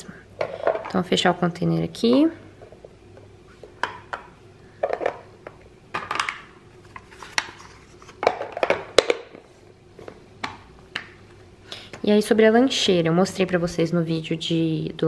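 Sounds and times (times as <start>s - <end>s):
plastic containers clacking: 3.6s - 9.4s.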